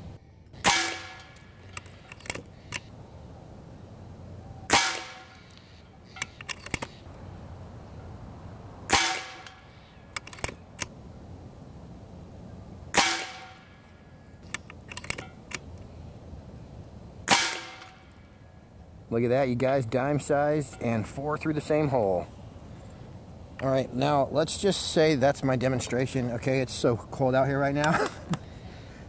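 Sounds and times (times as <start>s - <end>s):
air rifle shots cracking: 0.5s - 2.9s, 4.7s - 5.6s, 8.9s - 11.0s, 12.9s - 13.8s, 17.2s - 18.1s.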